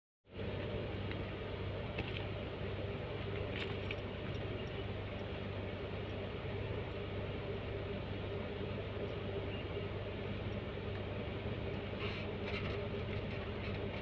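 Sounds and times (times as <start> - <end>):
engine humming steadily: 0.3 - 14.0.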